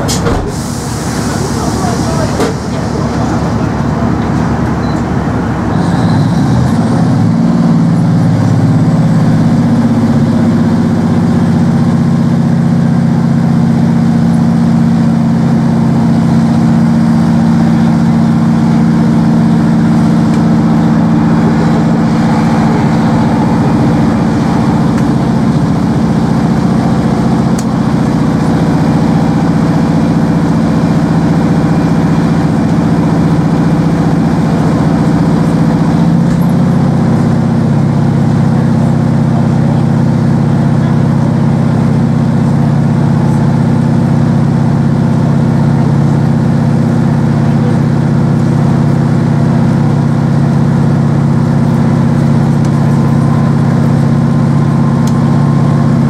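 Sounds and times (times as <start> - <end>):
diesel engine running: 0.0 - 56.0
train rumbling along track: 0.0 - 56.0.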